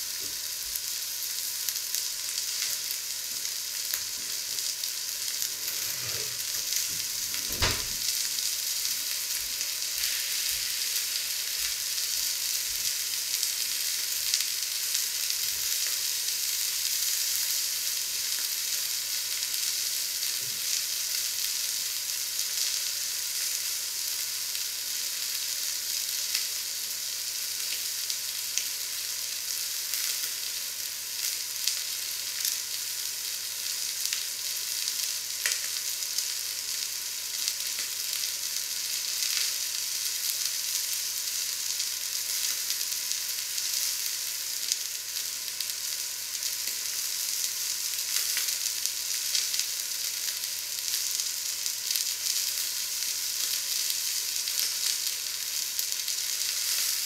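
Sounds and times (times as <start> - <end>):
meat sizzling in a hot pan: 0.0 - 57.0
fat crackling and popping: 5.4 - 8.5.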